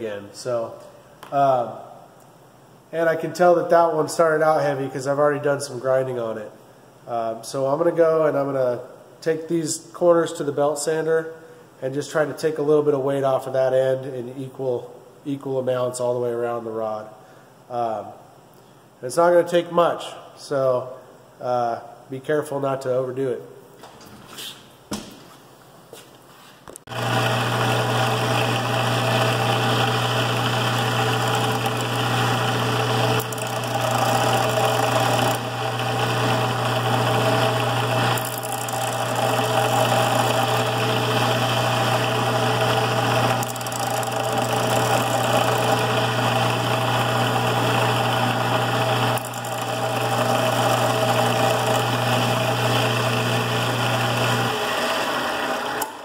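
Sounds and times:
belt sander grinding steel: 0:26.9 - 0:56.0.

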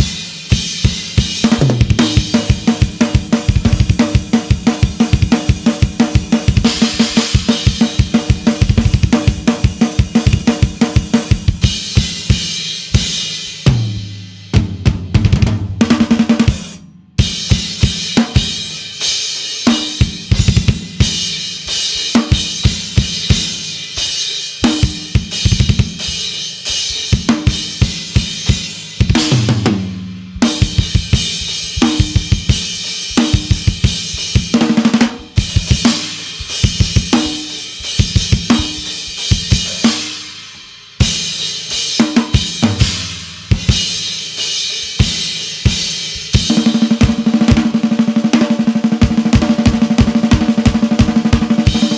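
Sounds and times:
cymbals and hi-hat: 0:00.0 - 0:15.1, 0:15.9 - 0:51.9
kick drum strokes: 0:30.4 - 0:34.6.

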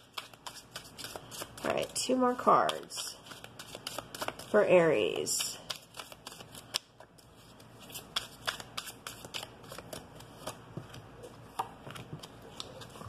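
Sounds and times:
cards shuffled and snapped: 0:07.9 - 0:10.6.

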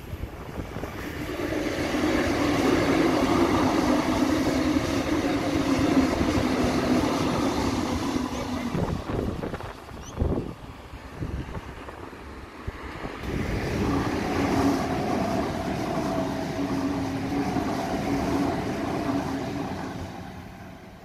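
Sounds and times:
electric train passing: 0:00.0 - 0:21.0.

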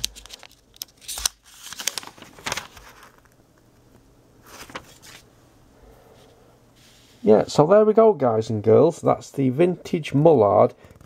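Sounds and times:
paper crinkling and rustling: 0:00.0 - 0:05.3.

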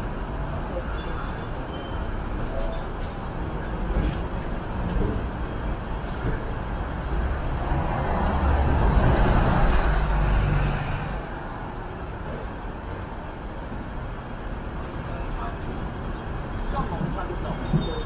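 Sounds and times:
low traffic rumble: 0:00.0 - 0:18.0.

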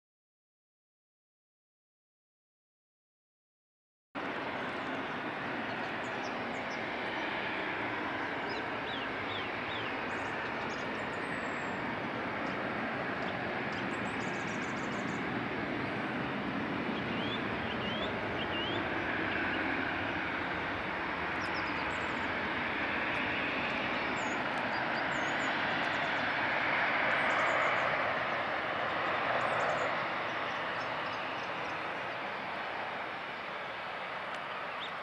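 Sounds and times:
jet engines rushing: 0:04.2 - 0:35.0.

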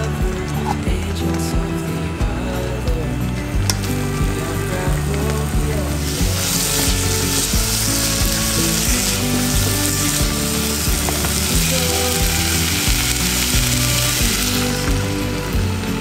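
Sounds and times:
background music: 0:00.0 - 0:16.0
vegetables sizzling in oil: 0:03.6 - 0:16.0.

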